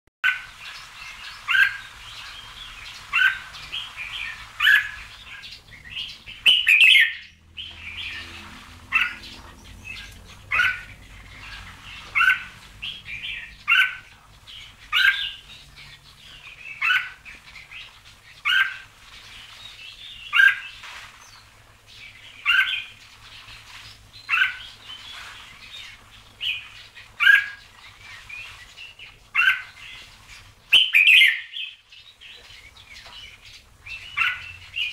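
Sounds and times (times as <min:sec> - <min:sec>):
bird singing warbled phrases: 0:00.2 - 0:34.9.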